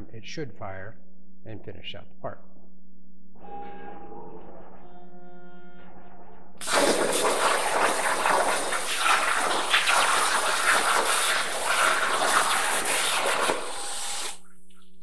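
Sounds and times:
plasma torch cutting metal: 6.6 - 14.4.

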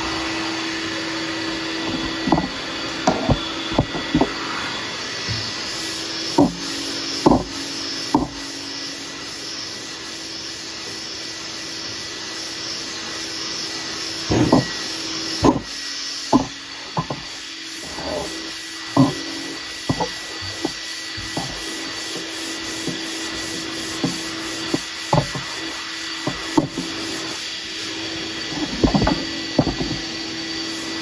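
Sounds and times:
vacuum running: 0.0 - 31.0
sanding scuffs: 1.7 - 10.8, 14.1 - 31.0
sanding block rasping: 14.3 - 27.4.

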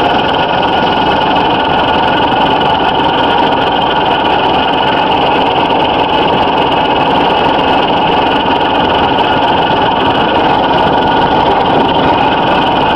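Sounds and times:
manure spreader running with whine: 0.0 - 12.9.

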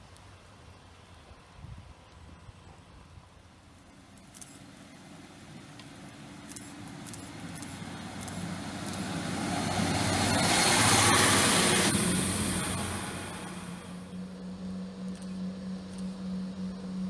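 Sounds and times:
diesel train engine: 0.0 - 17.0
train wheels on rails: 3.7 - 16.8.

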